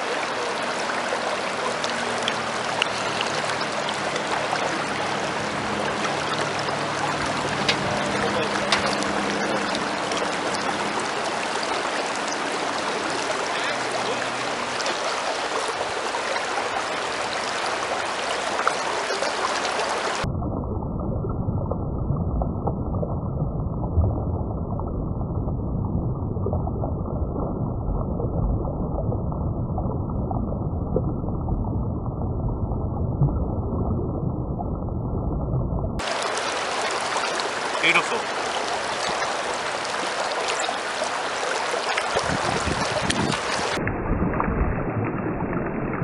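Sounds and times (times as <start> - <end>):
river rushing: 0.0 - 20.2, 36.0 - 43.8.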